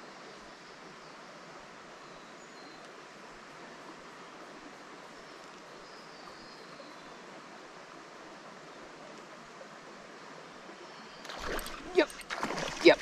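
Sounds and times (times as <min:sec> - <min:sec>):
faint outdoor hiss: 0:00.0 - 0:13.0
fish splashing on water surface: 0:11.3 - 0:13.0.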